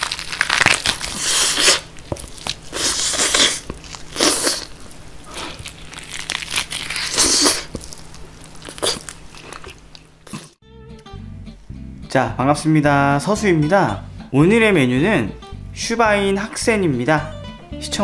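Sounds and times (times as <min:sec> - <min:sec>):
crunchy pork skin biting: 0:00.0 - 0:10.6.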